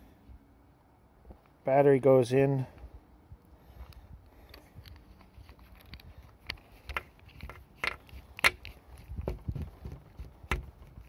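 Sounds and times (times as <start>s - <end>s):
flashlight clicks and knocks: 4.8s - 11.0s.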